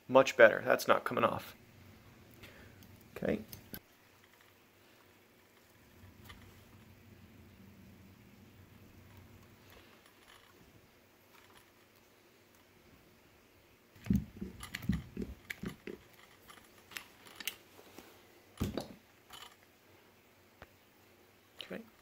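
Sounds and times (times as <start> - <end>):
cable crimper clicking and knocking: 14.0 - 17.6.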